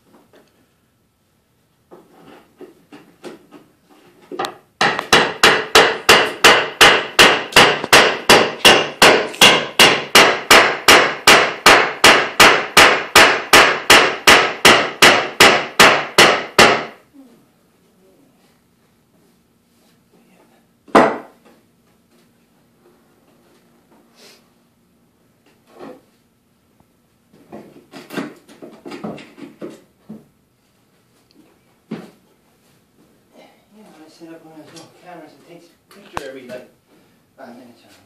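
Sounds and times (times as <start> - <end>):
hammer striking wood: 4.4 - 17.0, 20.9 - 21.4.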